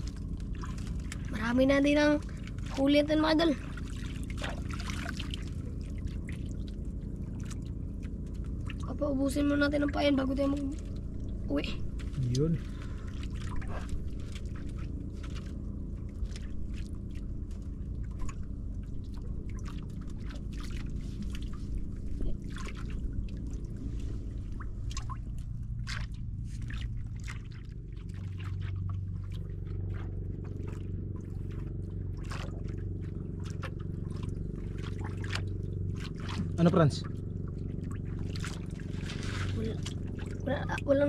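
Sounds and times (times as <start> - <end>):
low motor hum: 0.0 - 41.0
water splashing and trickling: 0.0 - 41.0.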